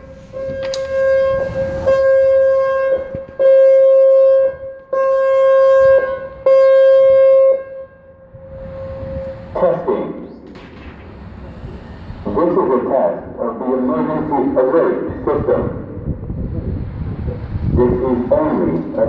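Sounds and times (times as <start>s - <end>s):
high-pitched warning siren: 0.0s - 9.9s.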